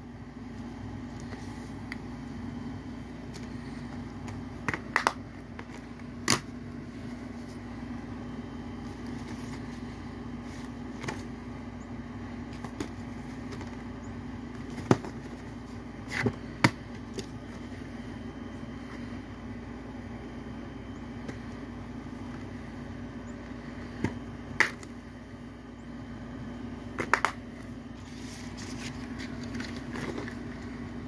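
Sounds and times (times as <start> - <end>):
low hum: 0.0 - 31.0.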